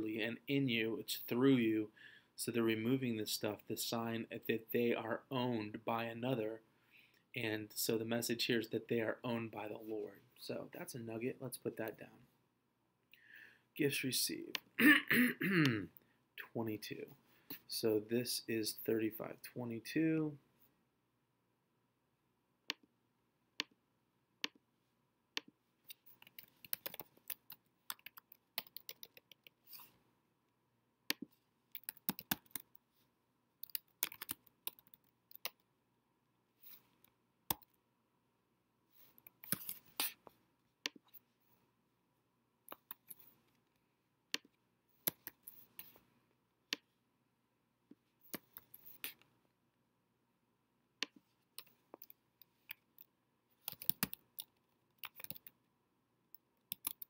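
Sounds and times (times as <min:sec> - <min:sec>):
typing on computer keyboard: 0:26.2 - 0:29.5, 0:31.8 - 0:32.7, 0:33.6 - 0:35.6, 0:53.6 - 0:55.5, 0:56.7 - 0:57.0.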